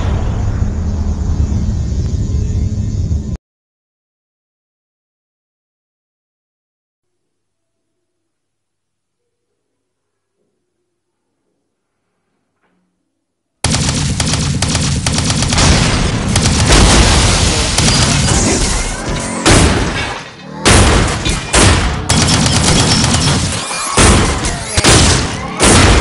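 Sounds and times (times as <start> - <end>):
booms and blasts: 0.0 - 2.4, 13.6 - 26.0
gunfire: 13.6 - 26.0.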